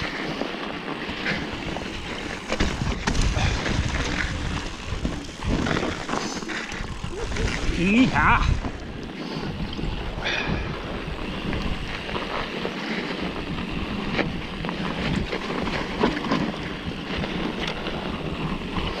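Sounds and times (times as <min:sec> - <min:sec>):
bike knocks and rattles: 0:00.0 - 0:10.0
tyre rumble on snow: 0:00.0 - 0:19.0
wind buffeting microphone: 0:00.0 - 0:19.0.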